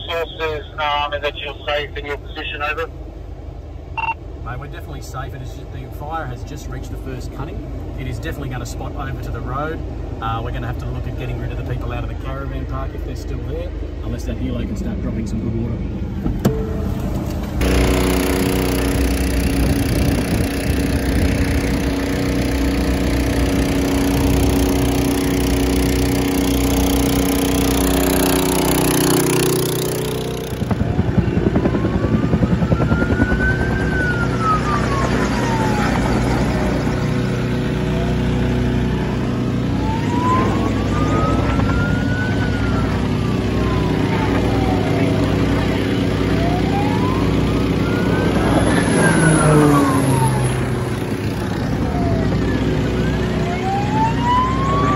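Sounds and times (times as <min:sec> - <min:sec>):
emergency siren wailing: 0:00.0 - 0:02.7, 0:17.4 - 0:54.9
vehicle engine humming: 0:00.0 - 0:54.9.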